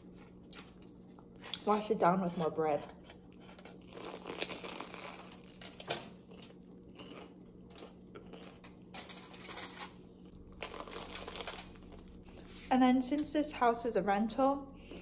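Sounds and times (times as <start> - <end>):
chewing: 3.1 - 8.9
bite into crusty pastry: 3.1 - 12.6
foil wrapper crinkling: 3.6 - 6.5, 8.9 - 12.4.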